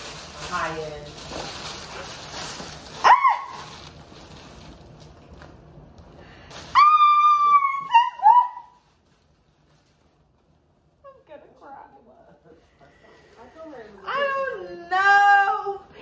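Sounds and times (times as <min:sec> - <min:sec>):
woman squealing with excitement: 0:06.8 - 0:08.8.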